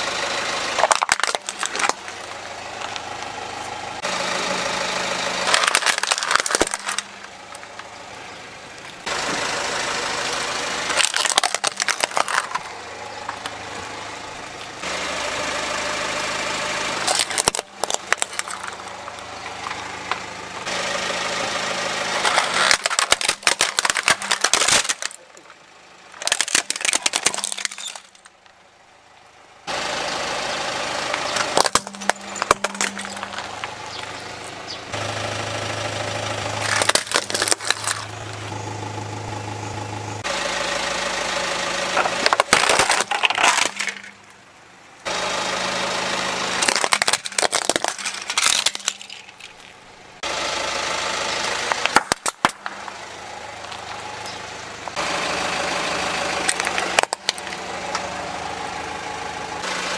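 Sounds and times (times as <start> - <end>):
car engine humming: 0.0 - 59.9
plastic toys cracking under a tyre: 0.8 - 3.3, 5.4 - 7.9, 10.9 - 13.6, 17.0 - 20.3, 22.1 - 28.6, 31.1 - 34.2, 36.6 - 38.2, 42.0 - 44.4, 46.6 - 49.8, 51.6 - 53.0, 56.4 - 58.1.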